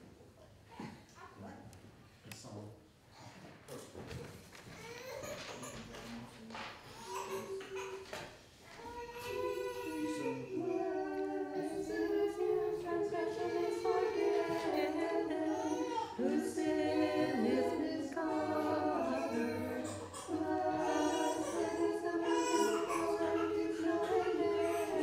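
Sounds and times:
choir singing a hymn: 0:09.2 - 0:25.0.

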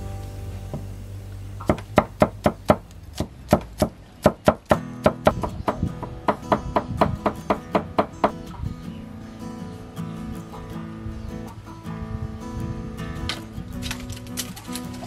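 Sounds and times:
acoustic guitar music: 0:00.0 - 0:15.0
cleaver chopping on wooden block: 0:01.6 - 0:08.0.

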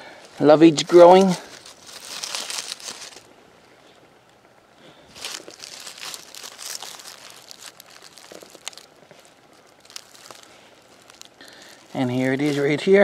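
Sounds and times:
dry leaves rustling and crackling: 0:00.0 - 0:03.3, 0:04.8 - 0:13.0.

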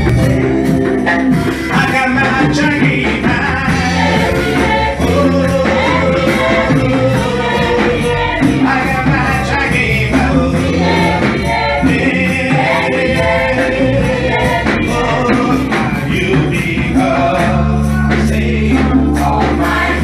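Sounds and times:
keyboard bass and beat: 0:00.0 - 0:20.0
man singing lead: 0:01.7 - 0:11.2
female choir singing: 0:03.6 - 0:20.0.

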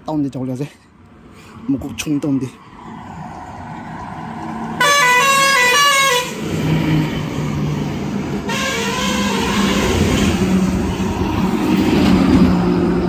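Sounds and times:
diesel engine rumble: 0:03.1 - 0:13.0
truck horn stepped notes: 0:08.5 - 0:10.0.

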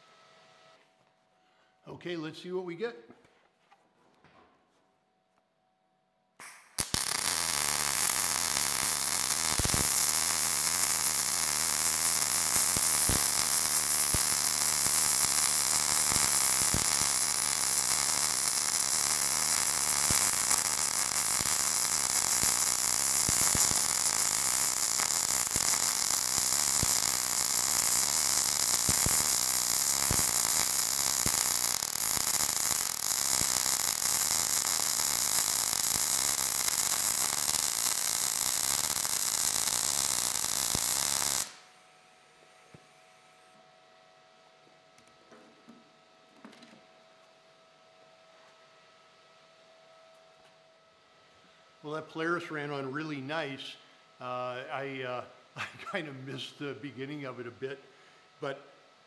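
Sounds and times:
welding arc hissing and popping: 0:06.4 - 0:41.6.

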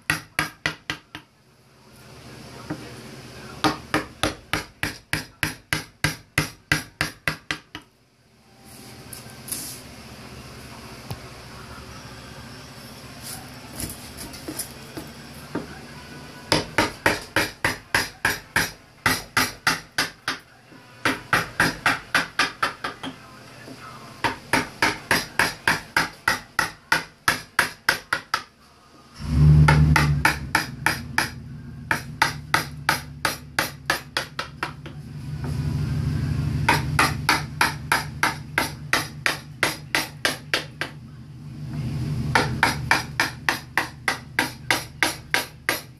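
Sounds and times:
mallet tapping carving gouge: 0:00.1 - 0:01.3, 0:03.6 - 0:07.9, 0:16.5 - 0:20.4, 0:21.0 - 0:23.2, 0:24.2 - 0:28.5, 0:29.6 - 0:35.0, 0:36.7 - 0:41.0, 0:42.3 - 0:45.9
low hum: 0:35.0 - 0:37.0, 0:41.0 - 0:42.6.

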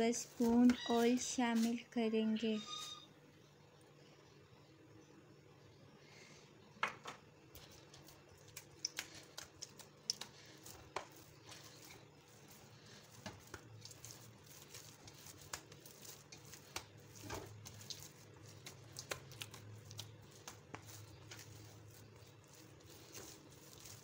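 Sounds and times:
dough kneading clicks and slaps: 0:06.8 - 0:24.0.

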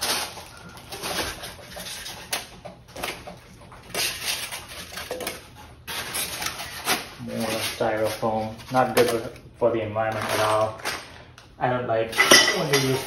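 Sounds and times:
cardboard and styrofoam rustling: 0:00.0 - 0:09.4, 0:10.0 - 0:11.2
styrofoam squeaks: 0:05.8 - 0:09.0.

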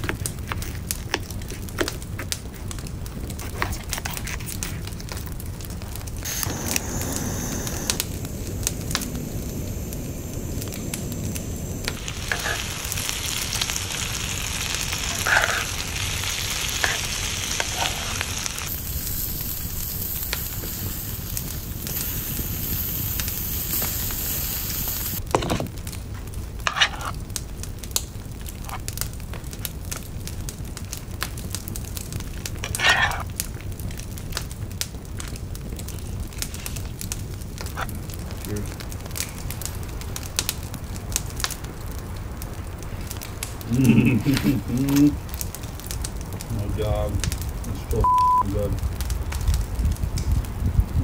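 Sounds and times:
vegetables sizzling in skillet: 0:05.8 - 0:25.6, 0:26.6 - 0:27.2, 0:32.1 - 0:33.8, 0:42.8 - 0:49.0.

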